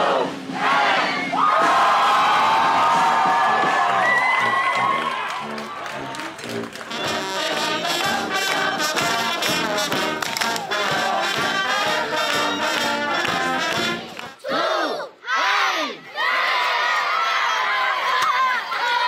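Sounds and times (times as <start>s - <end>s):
brass band playing: 0.0s - 14.4s
people shouting: 14.4s - 19.0s.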